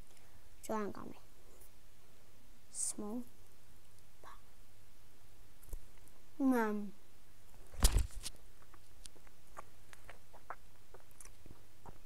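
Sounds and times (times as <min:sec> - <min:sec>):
light clicks and rustles: 0:07.5 - 0:10.2.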